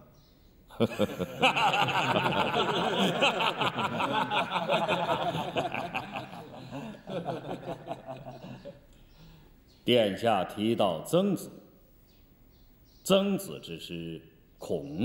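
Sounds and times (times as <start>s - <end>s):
group of men laughing: 0.7s - 9.0s.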